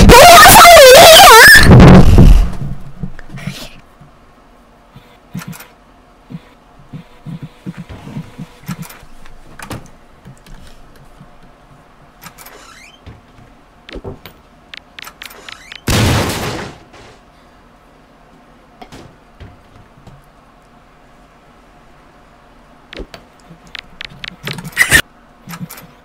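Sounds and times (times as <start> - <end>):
loud crash: 1.5 - 2.8.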